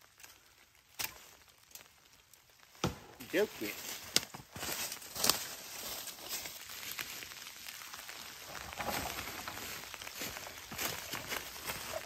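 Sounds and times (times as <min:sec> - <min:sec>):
branch cracking: 0:00.0 - 0:12.0
dead branch being handled: 0:00.0 - 0:12.0
footsteps crunching through dry leaves: 0:03.0 - 0:12.0.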